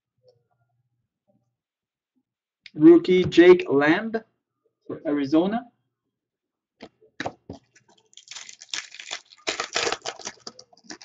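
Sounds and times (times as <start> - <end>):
foil wrapper tearing and crinkling: 7.7 - 11.0.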